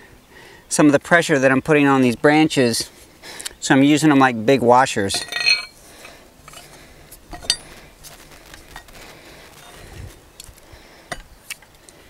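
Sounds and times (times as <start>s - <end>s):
metallic clinks of steel plate: 5.1s - 5.8s.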